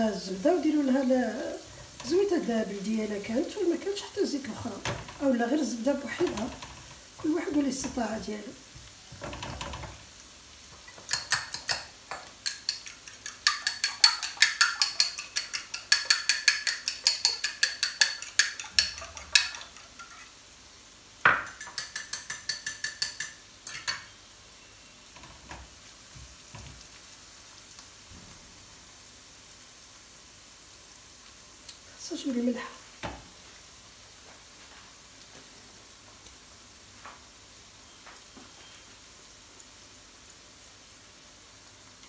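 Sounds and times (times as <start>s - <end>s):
faint frying sizzle: 0.0s - 42.0s
metal utensil clinking on cookware: 10.9s - 20.3s, 21.3s - 24.1s.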